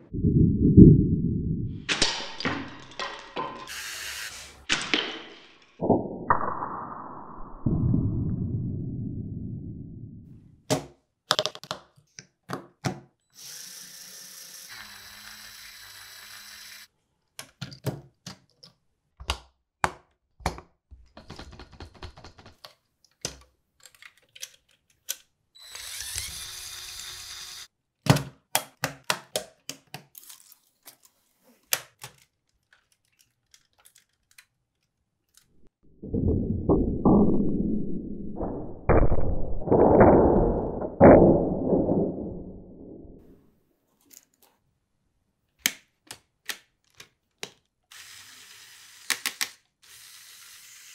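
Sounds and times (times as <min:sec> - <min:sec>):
plastic parts clicking together: 0:21.2 - 0:25.4, 0:28.1 - 0:35.7, 0:45.6 - 0:47.8, 0:49.1 - 0:49.7.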